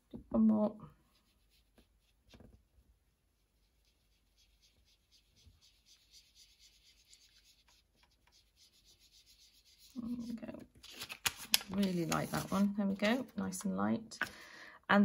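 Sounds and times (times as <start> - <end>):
foam sponge rubbing on card: 1.1 - 2.4, 3.2 - 10.4, 11.9 - 12.7.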